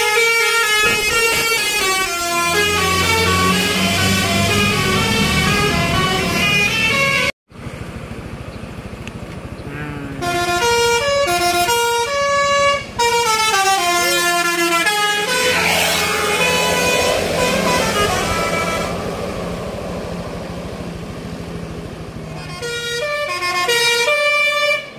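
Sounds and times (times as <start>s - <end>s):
multi-tone bus horn tunes: 0.0s - 7.4s, 10.1s - 19.1s, 22.3s - 24.9s
low engine sound: 1.0s - 12.6s, 14.7s - 23.7s
rushing noise: 14.6s - 22.4s.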